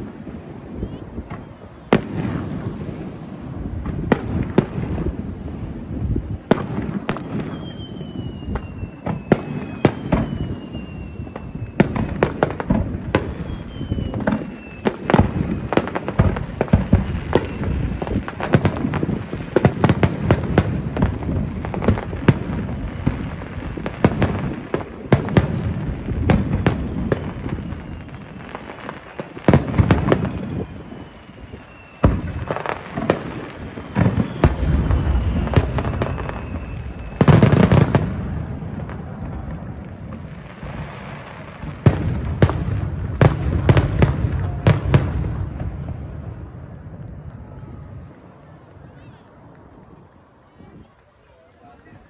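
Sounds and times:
firework shells bursting: 0.0 - 50.3
descending firework whistles: 0.0 - 52.0
rumble and crackle: 0.0 - 52.0.

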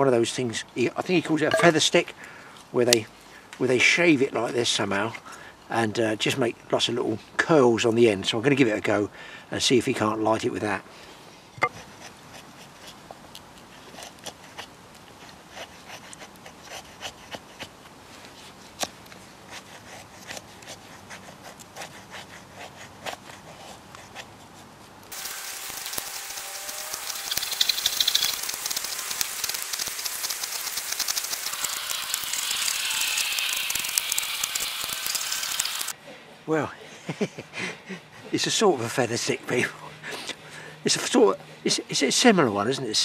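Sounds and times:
knife scraping wood: 18.8 - 35.9
small clicks: 25.1 - 35.9.

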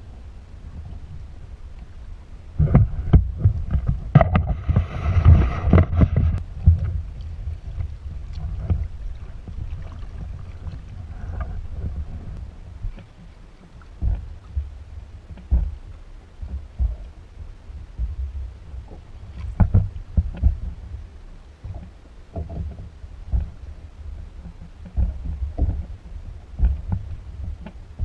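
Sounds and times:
wind rumble on microphone: 0.0 - 28.0
fish thrashing and water splashing: 2.6 - 17.1.

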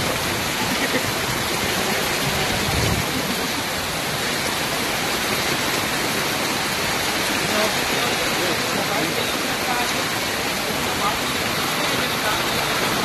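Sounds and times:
floodwater rushing over road: 0.0 - 13.0
heavy rain hissing: 0.0 - 13.0.

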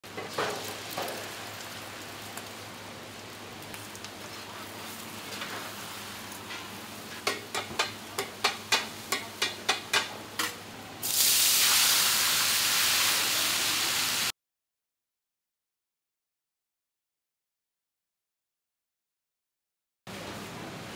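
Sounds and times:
egg sizzling in hot oil: 11.0 - 14.3
loud sizzling hiss: 11.0 - 14.3.

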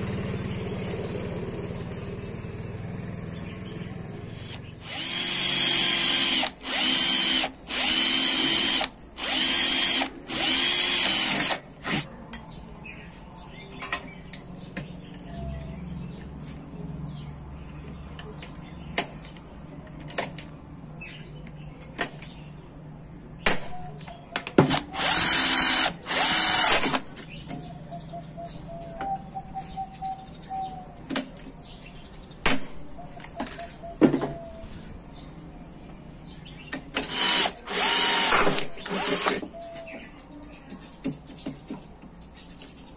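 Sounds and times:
electric drill running: 4.3 - 12.1, 24.7 - 27.0, 37.0 - 39.4.

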